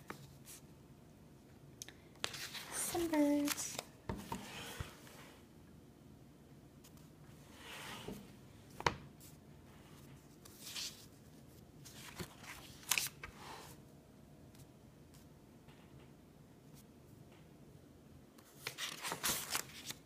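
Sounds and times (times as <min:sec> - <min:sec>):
paper pages swishing: 0:11.8 - 0:13.4, 0:18.6 - 0:20.0.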